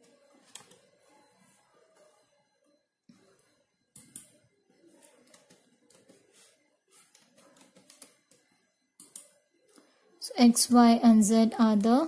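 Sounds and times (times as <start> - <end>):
keyboard and mouse clicks: 7.1 - 8.4, 9.0 - 9.3.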